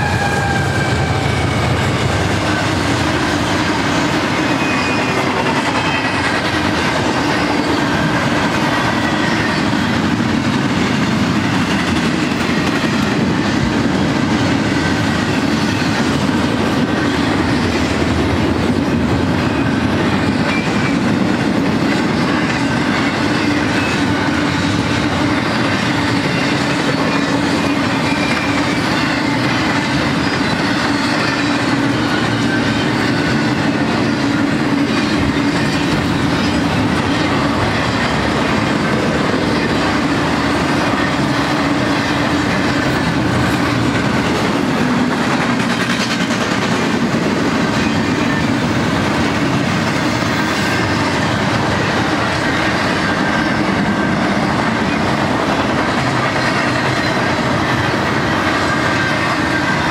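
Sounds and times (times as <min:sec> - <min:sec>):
high wheel squeal: 0:00.0 - 0:10.2, 0:19.2 - 0:21.3, 0:21.9 - 0:44.8, 0:47.6 - 0:48.8, 0:50.0 - 0:59.9
train wheels clattering on rails: 0:00.0 - 0:59.9.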